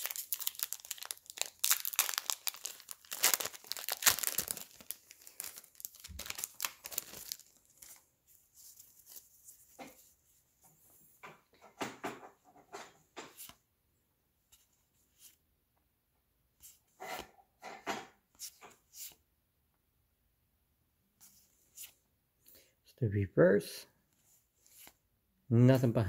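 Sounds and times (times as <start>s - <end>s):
foil wrapper crinkling and tearing: 0.0s - 8.0s
cards rustling: 0.0s - 10.2s, 24.6s - 25.0s.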